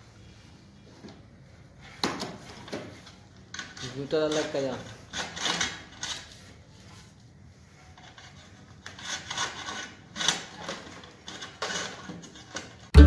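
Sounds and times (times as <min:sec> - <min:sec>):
wires scraping against metal board: 0:03.0 - 0:06.6, 0:07.6 - 0:12.9.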